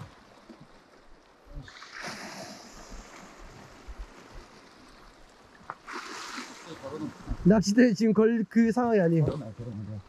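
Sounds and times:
waves washing against rocks: 1.4s - 7.8s
hissing surge of water: 1.5s - 5.1s, 5.8s - 7.3s.

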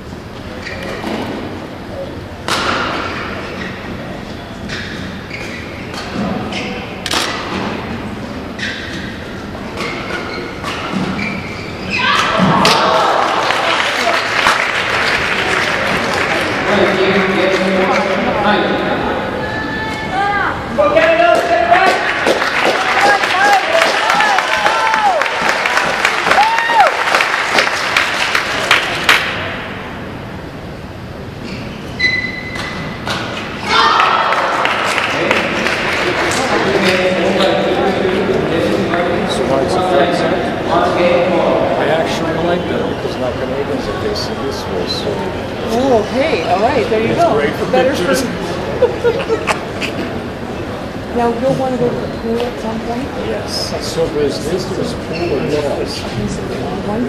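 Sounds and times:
applause: 13.2s - 17.2s, 21.9s - 29.2s, 34.3s - 36.4s.

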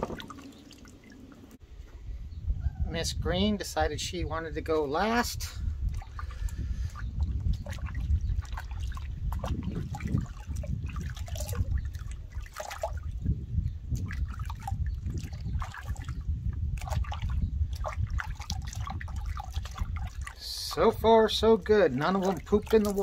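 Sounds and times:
water splashing in plastic tub: 0.0s - 1.6s, 5.8s - 13.3s, 13.9s - 23.0s.

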